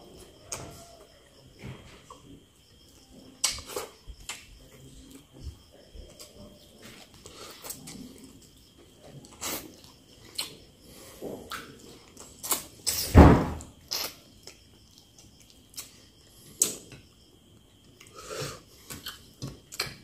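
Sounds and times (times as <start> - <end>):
thump: 13.1 - 13.7
person chewing: 13.8 - 16.9.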